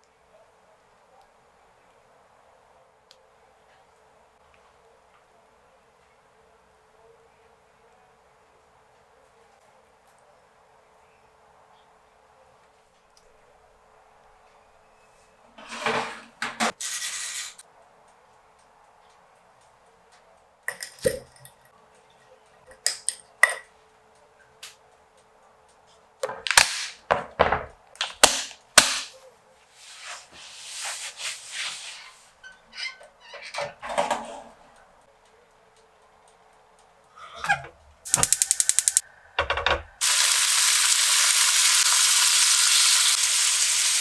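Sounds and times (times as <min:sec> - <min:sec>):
glass jars clinking: 0:20.7 - 0:21.6.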